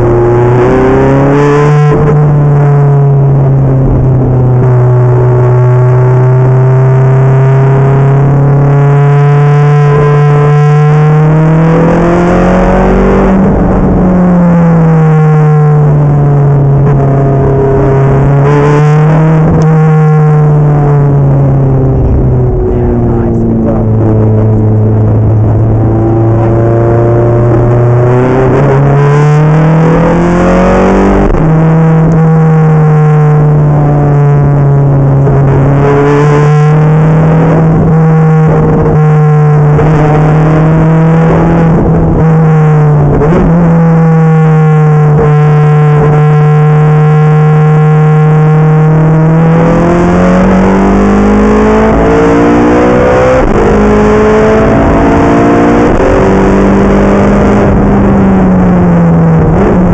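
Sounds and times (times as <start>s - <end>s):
car engine revving in cabin: 0.0s - 59.9s.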